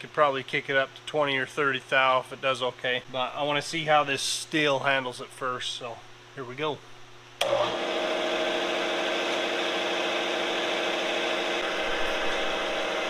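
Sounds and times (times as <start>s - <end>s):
milling machine running: 7.4s - 13.0s.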